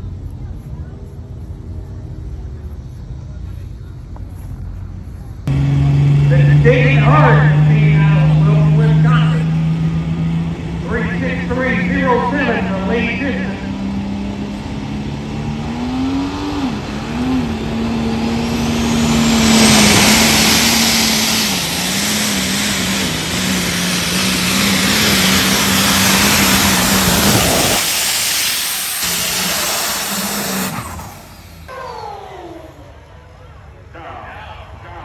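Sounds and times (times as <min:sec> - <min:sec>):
tractor engine running flat out: 0:01.1 - 0:33.4
high whine: 0:05.5 - 0:33.2.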